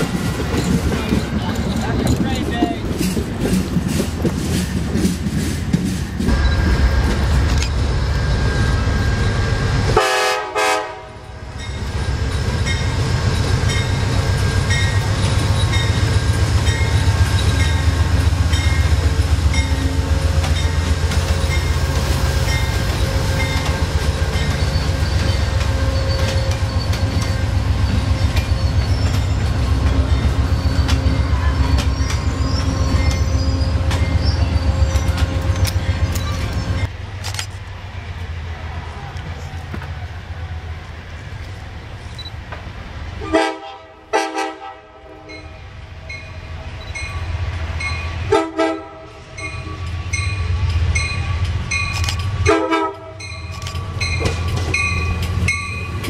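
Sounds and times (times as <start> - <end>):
train wheels clicking over rail joints: 0.0 - 9.4, 11.5 - 37.7, 49.4 - 56.0
train horn chord: 10.0 - 11.2, 43.2 - 45.2, 52.5 - 53.2.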